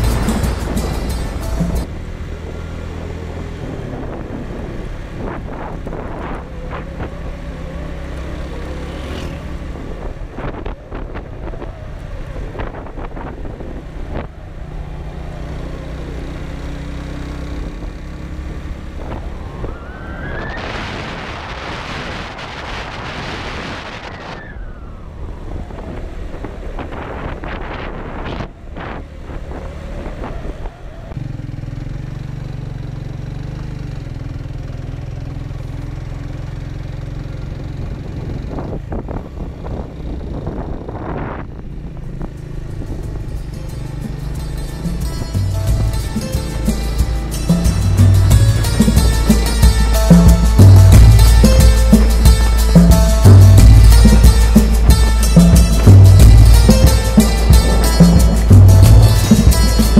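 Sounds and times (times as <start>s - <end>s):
loud rushing noise: 0.0s - 2.1s, 19.0s - 29.0s, 45.4s - 59.9s
motorcycle engine running: 0.0s - 20.0s, 24.6s - 59.9s.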